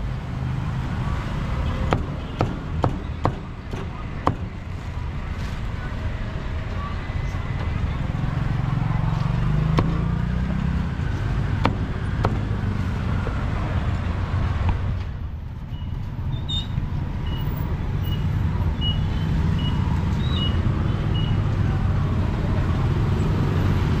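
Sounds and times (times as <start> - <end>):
street traffic rumble: 0.0 - 24.0
cleaver chopping on wooden block: 9.7 - 10.1, 11.6 - 12.6.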